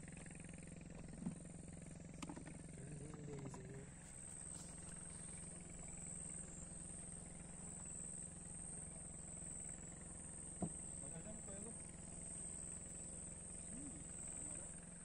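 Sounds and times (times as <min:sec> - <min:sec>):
low motor hum: 0:00.0 - 0:15.0
insect chorus: 0:00.1 - 0:15.0.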